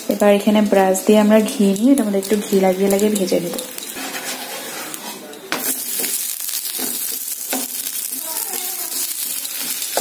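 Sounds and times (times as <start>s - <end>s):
flatbread sizzling in pan: 0.0s - 10.0s
wooden spatula scraping pan: 1.4s - 6.2s.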